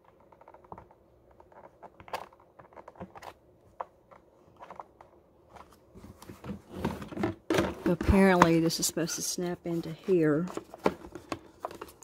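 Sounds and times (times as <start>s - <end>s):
plastic clicks and rustles: 0.0s - 8.6s.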